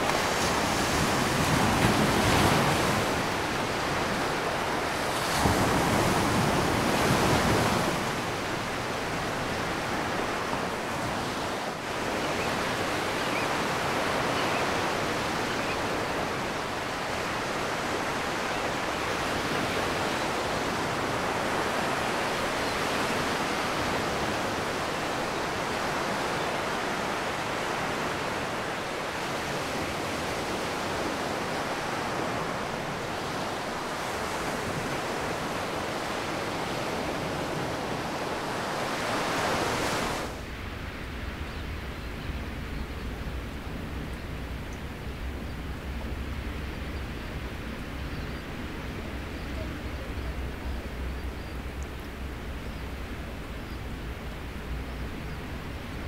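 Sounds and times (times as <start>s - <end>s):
surf washing onto beach: 0.0s - 42.0s.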